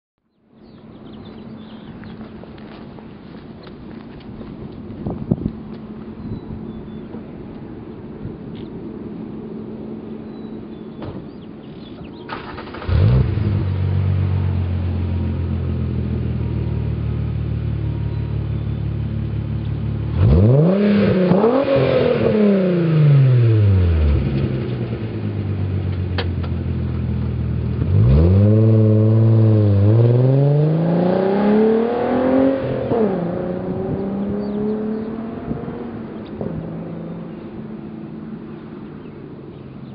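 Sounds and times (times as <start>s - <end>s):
car engine starting and idling: 3.6s - 39.9s
engine revving: 12.2s - 15.8s, 20.0s - 25.2s, 27.7s - 37.4s
car accelerating with upshifts: 12.3s - 16.4s, 19.2s - 38.7s.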